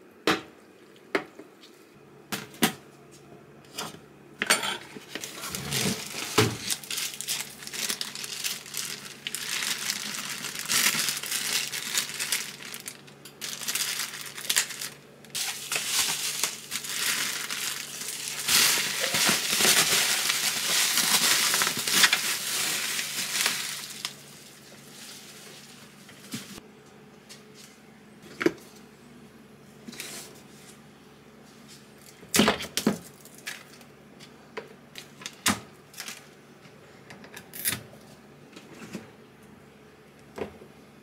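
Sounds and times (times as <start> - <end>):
crinkling and crumpling: 4.9 - 26.6, 35.0 - 36.4.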